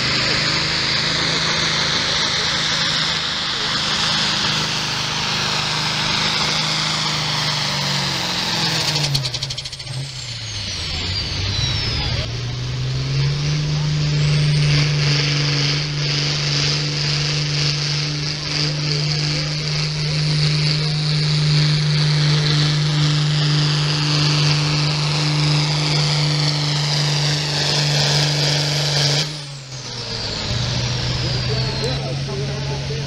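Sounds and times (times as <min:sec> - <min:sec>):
diesel tractor engine drone: 0:00.0 - 0:33.0
turbo whistle: 0:09.2 - 0:12.4.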